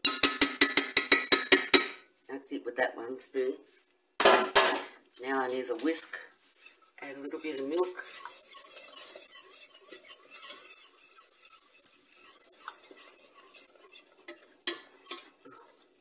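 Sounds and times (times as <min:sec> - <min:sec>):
whisk scraping metal pot: 0:04.2 - 0:16.0.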